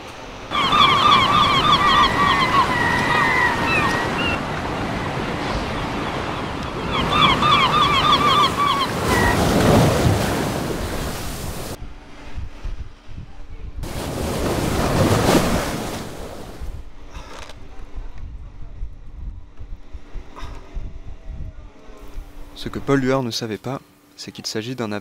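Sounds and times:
sea surf: 0:00.0 - 0:11.8, 0:13.8 - 0:16.8
wave splashing over: 0:00.0 - 0:11.8, 0:13.8 - 0:16.8
gulls calling: 0:00.3 - 0:11.8.

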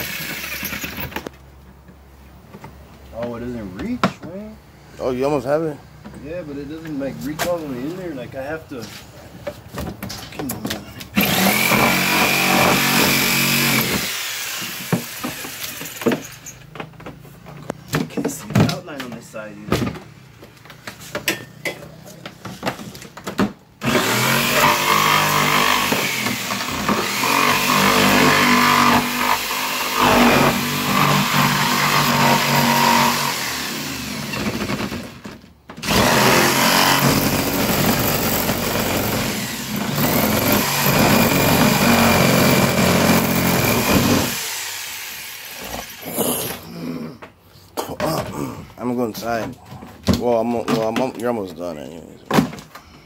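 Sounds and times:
jigsaw cutting plastic: 0:11.2 - 0:16.3, 0:23.8 - 0:35.2, 0:35.8 - 0:46.6.

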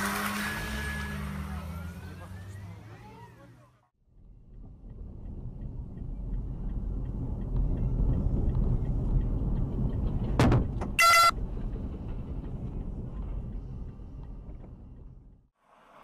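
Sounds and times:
car driving rumble: 0:00.0 - 0:16.0
short loud beep: 0:11.0 - 0:11.3.

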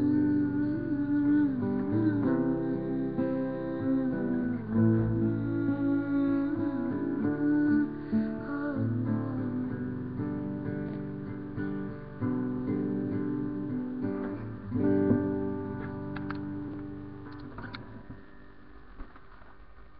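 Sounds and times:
guitar chords and picked notes: 0:00.0 - 0:19.1.

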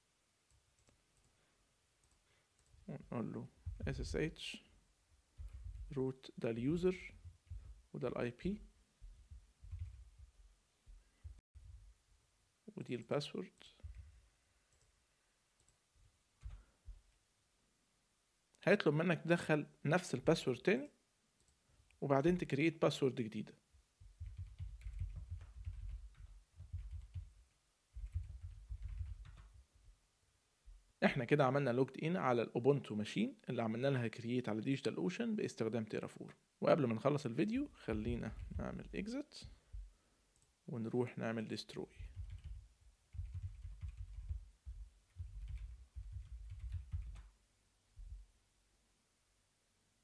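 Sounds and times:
keyboard typing: 0:05.4 - 0:05.9, 0:07.1 - 0:07.8, 0:09.3 - 0:10.3, 0:16.4 - 0:16.6, 0:24.0 - 0:27.4, 0:28.0 - 0:29.6, 0:37.9 - 0:38.9, 0:42.0 - 0:47.3.

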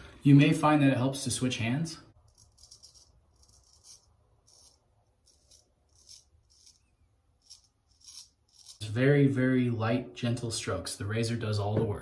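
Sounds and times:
razor scraping stubble: 0:02.2 - 0:09.0.

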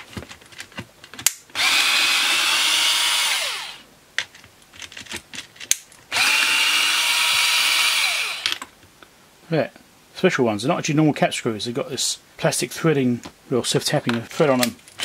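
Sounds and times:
electric screwdriver motor: 0:01.6 - 0:03.8, 0:06.1 - 0:08.6
small clicks and knocks: 0:04.2 - 0:06.0.

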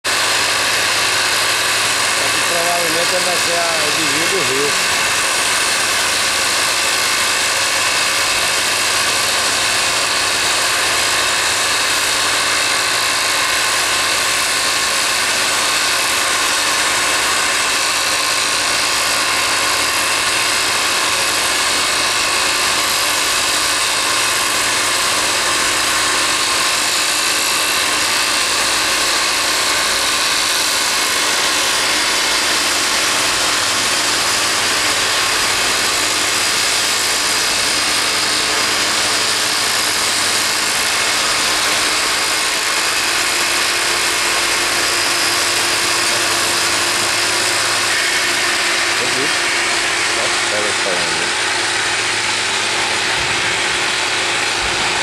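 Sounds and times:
heavy machinery droning: 0:00.0 - 0:55.0.

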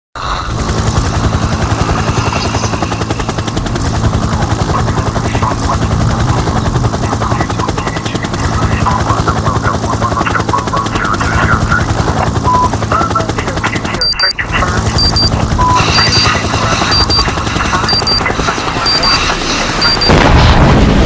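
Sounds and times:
helicopter rotor chopping: 0:00.5 - 0:21.0
low hum: 0:15.0 - 0:21.0.

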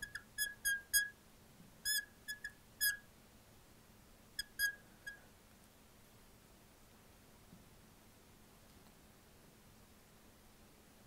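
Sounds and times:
marker squeaking on glass: 0:00.0 - 0:01.2, 0:01.8 - 0:03.0, 0:04.4 - 0:05.2.

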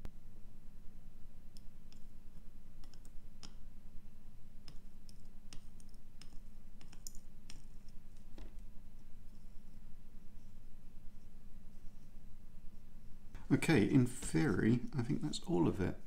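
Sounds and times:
steady low hum: 0:00.0 - 0:16.0
light clicks and taps: 0:02.8 - 0:03.6, 0:04.6 - 0:09.5.

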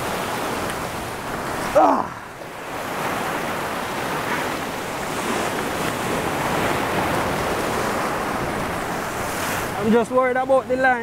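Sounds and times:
surf breaking on rocks: 0:00.0 - 0:11.0.

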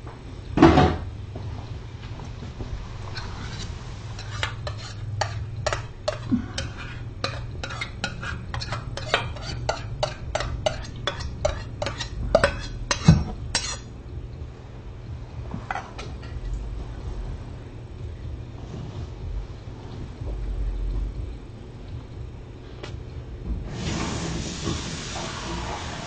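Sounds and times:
steady low hum: 0:00.0 - 0:25.2
spoon clinking against dish: 0:04.2 - 0:13.9.

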